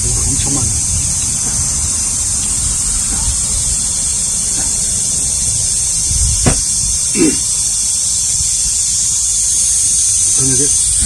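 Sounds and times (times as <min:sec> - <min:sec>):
wind rumbling on microphone: 0:00.0 - 0:07.1
insect chorus hissing: 0:00.0 - 0:11.0.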